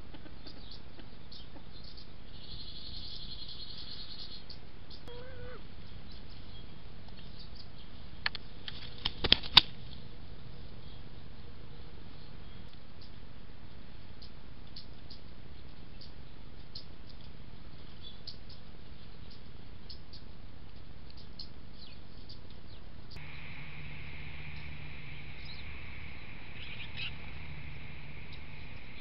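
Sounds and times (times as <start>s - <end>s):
songbirds chirping: 0.0s - 29.0s
steady high drone: 23.2s - 29.0s.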